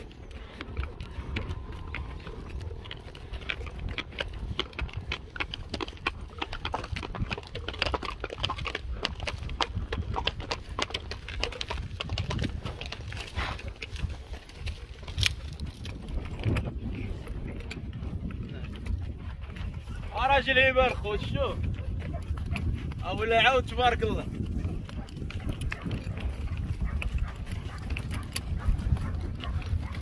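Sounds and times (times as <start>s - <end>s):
steady low rumble: 0.0s - 7.5s
horse hooves clip-clopping: 0.0s - 30.0s.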